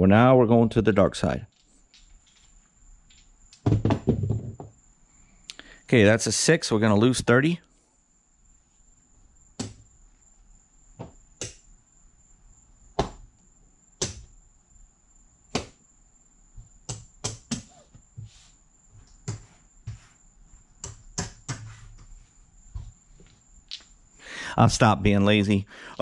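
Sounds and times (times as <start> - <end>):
casino chips clicking: 1.5 - 3.6, 23.7 - 23.9.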